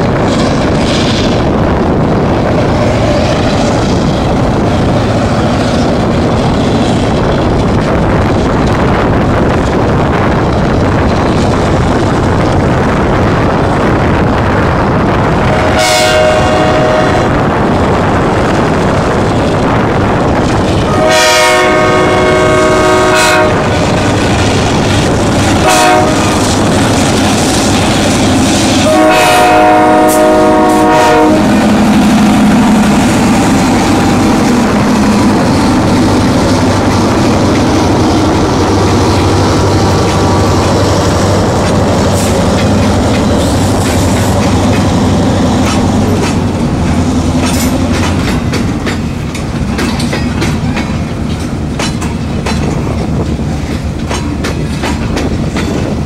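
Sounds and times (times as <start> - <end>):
locomotive rumbling past: 0.0 - 56.0
train wheels clacking on rails: 0.0 - 56.0
locomotive air horn blasts: 15.5 - 17.3, 20.9 - 23.7, 25.6 - 26.4, 28.8 - 31.6.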